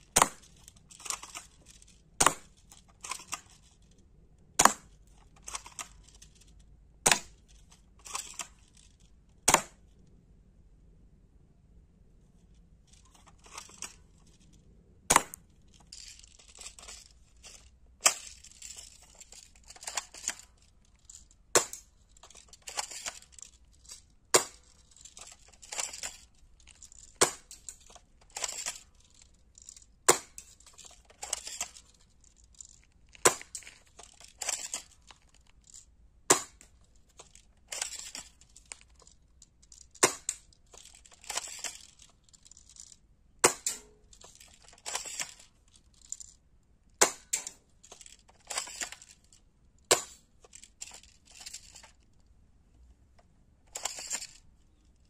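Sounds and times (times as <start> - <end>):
toy gun shots snapping: 4.6 - 4.9, 7.0 - 7.3, 9.4 - 9.8, 15.1 - 15.4, 36.3 - 36.7, 40.0 - 40.4, 43.4 - 43.9, 47.0 - 47.6.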